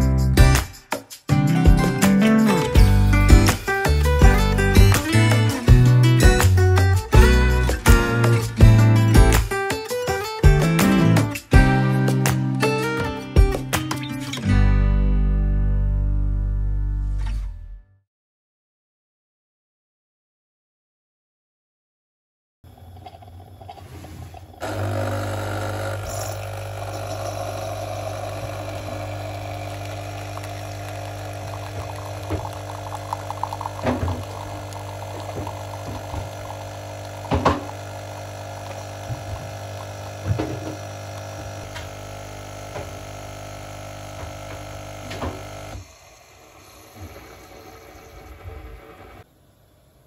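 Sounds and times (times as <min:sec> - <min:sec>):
water gurgling: 0:22.7 - 0:41.6
coffee machine pump hum: 0:22.7 - 0:50.0.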